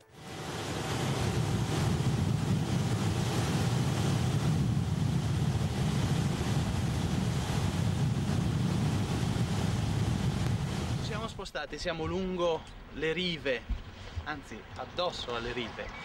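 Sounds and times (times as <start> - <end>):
boat engine drone: 0.0 - 11.0
water rushing along hull: 0.0 - 11.4
wind buffeting microphone: 0.2 - 12.4.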